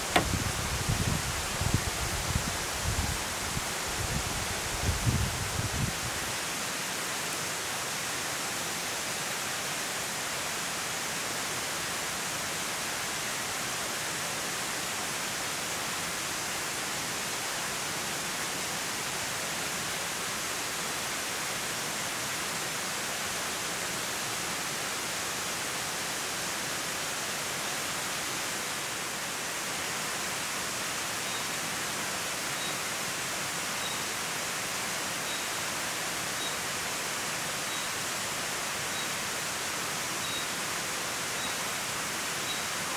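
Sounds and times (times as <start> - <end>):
rush of flowing water: 0.0 - 42.9
faint high peeps: 40.2 - 40.5.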